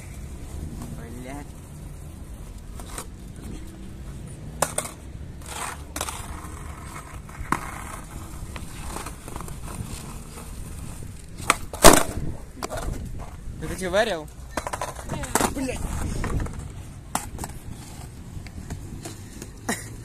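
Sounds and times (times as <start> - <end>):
bmx bikes knocking on concrete: 11.4 - 17.8.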